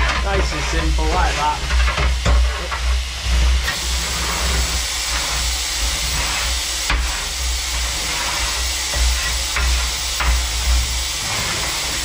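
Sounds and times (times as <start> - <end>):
fire rake knocking: 0.0 - 2.6
steam hissing from locomotive: 0.0 - 12.0.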